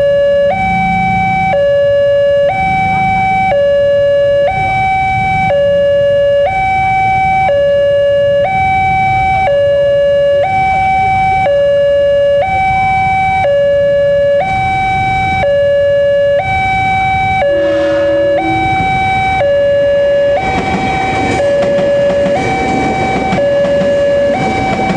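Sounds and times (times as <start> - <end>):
low traffic rumble: 0.0 - 6.2, 16.2 - 24.9
two-tone crossing alarm: 0.0 - 24.9
low steady tone: 17.3 - 20.4.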